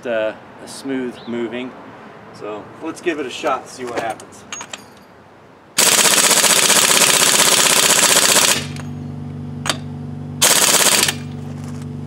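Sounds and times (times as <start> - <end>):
air impact wrench hammering: 5.8 - 11.4
steady low hum: 7.6 - 12.0.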